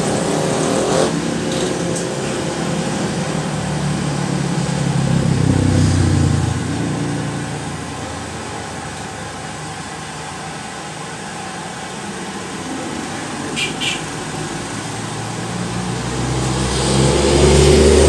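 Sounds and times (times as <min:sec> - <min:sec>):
heavy truck engine: 0:00.0 - 0:18.0
motorcycle engine passing: 0:03.0 - 0:08.9, 0:12.7 - 0:18.0.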